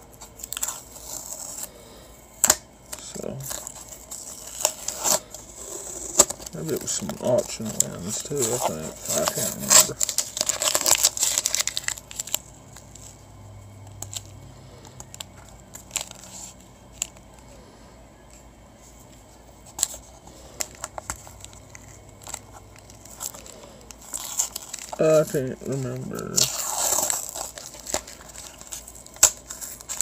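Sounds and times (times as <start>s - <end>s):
tape tearing: 2.4s - 13.0s, 20.6s - 30.0s.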